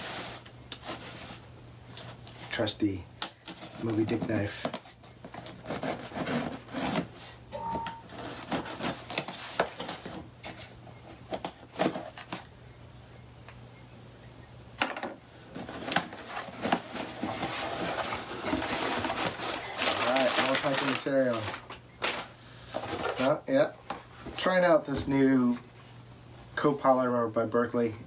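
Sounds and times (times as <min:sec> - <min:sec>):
knocks scrapes and rustling: 0:03.5 - 0:12.4, 0:15.0 - 0:25.6.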